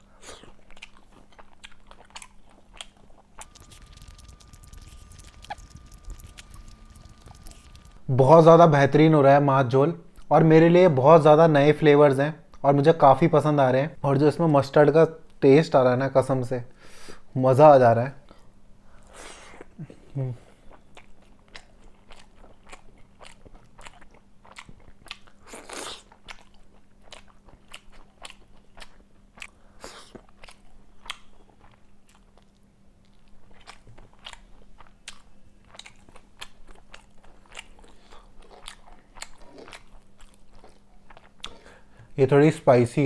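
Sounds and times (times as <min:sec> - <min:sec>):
crunchy bites and chewing: 0:00.3 - 0:08.2, 0:20.9 - 0:41.7.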